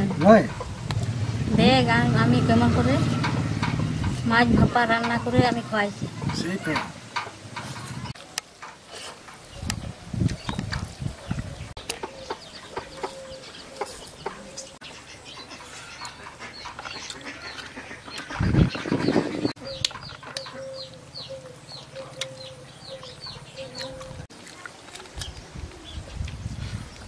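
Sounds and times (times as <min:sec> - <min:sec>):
birds chirping: 0:00.0 - 0:27.0.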